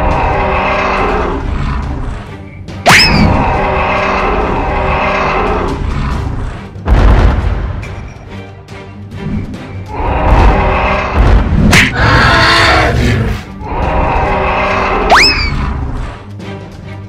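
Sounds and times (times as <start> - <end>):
cartoon dinosaur roaring: 0.0 - 2.0, 3.1 - 6.3, 9.9 - 16.0
background music: 0.0 - 17.0.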